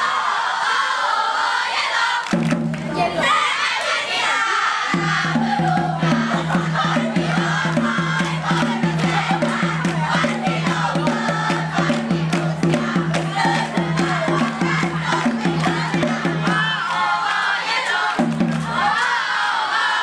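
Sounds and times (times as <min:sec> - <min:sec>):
group singing and chanting: 0:00.0 - 0:20.0
conga drums rhythm: 0:02.3 - 0:03.0, 0:04.9 - 0:17.2, 0:18.2 - 0:19.0.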